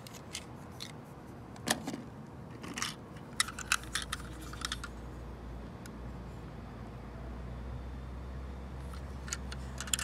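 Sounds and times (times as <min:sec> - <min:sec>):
plastic toy trucks clicking: 0:02.5 - 0:05.0, 0:08.9 - 0:10.0.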